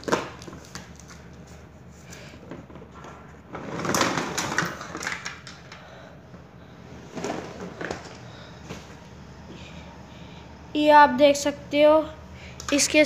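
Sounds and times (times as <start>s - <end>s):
plastic toy parts clattering: 2.7s - 5.8s.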